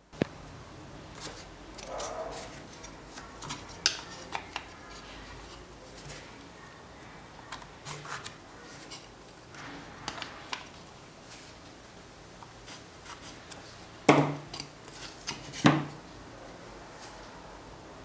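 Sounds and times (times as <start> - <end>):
pencil scratching on wood: 1.2 - 6.2.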